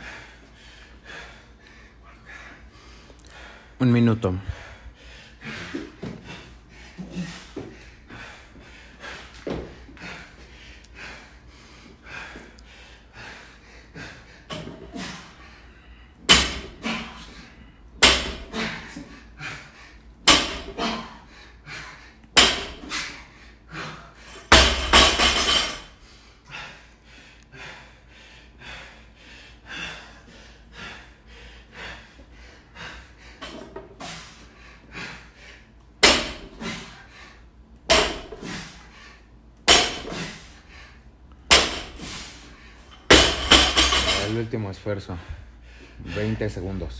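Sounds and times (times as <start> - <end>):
barbell clattering impact: 16.3 - 16.8, 18.0 - 18.5, 20.3 - 20.8, 22.4 - 22.8, 24.5 - 25.9, 36.0 - 36.5, 37.9 - 38.4, 39.7 - 40.2, 41.5 - 42.0, 43.0 - 44.4
barbell thudding on rubber mat: 36.0 - 36.5, 37.9 - 38.4, 39.7 - 40.2, 43.1 - 44.2.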